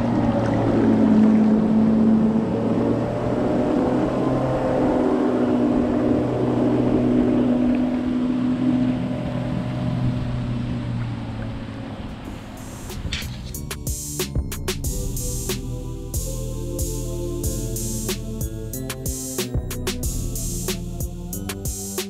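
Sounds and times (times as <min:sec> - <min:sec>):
water rushing: 0:00.0 - 0:15.7
outboard motor droning: 0:00.0 - 0:22.0.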